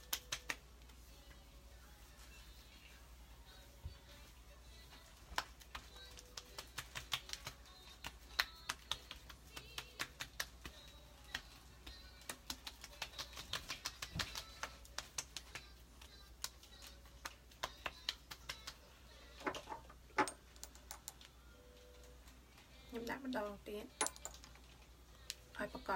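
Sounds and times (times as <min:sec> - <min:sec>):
fingertips patting skin: 0:00.0 - 0:01.1, 0:04.9 - 0:18.9.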